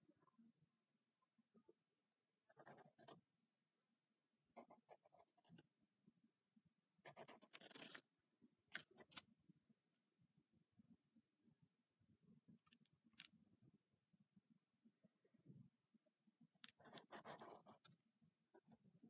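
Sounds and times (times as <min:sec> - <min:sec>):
pen scratching on paper: 0:02.5 - 0:03.2, 0:04.6 - 0:05.7, 0:07.0 - 0:08.1, 0:16.7 - 0:18.0.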